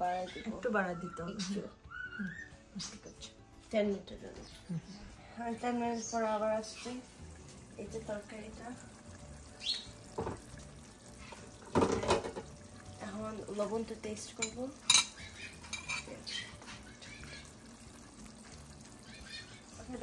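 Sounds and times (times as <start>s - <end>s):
stirring in pot: 6.2s - 20.0s
metal spoons clinking on pot: 14.2s - 16.6s.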